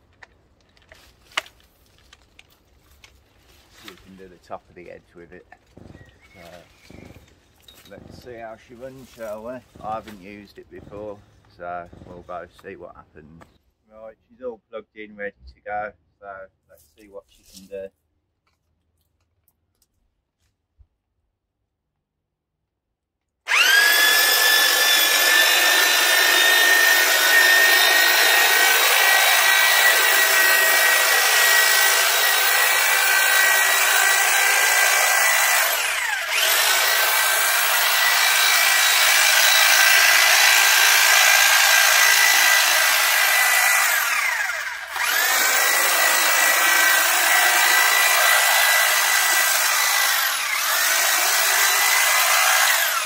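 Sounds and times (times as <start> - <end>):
hedge trimmer whining: 4.8 - 12.6, 23.5 - 53.0.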